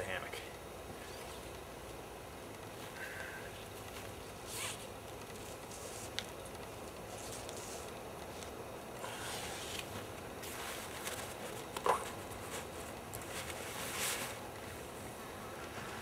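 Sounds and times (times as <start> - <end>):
nylon webbing rustling and scraping: 3.6 - 16.0.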